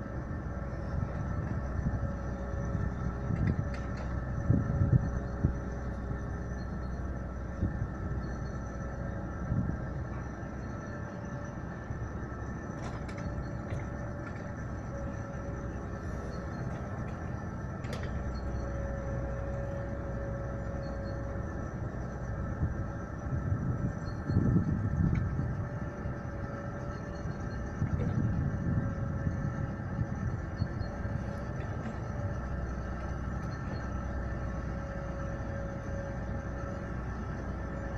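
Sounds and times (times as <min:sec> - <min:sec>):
excavator diesel engine running: 0:00.0 - 0:37.9.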